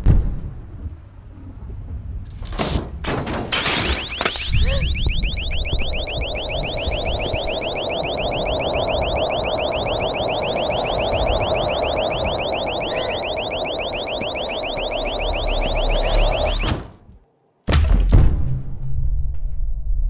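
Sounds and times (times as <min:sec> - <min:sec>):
electronic alarm chirps: 0:03.6 - 0:16.8.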